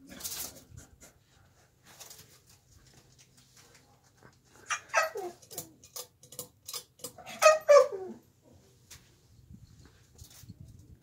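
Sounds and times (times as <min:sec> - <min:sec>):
dog whining and yelping: 0:04.7 - 0:05.7, 0:07.2 - 0:08.2.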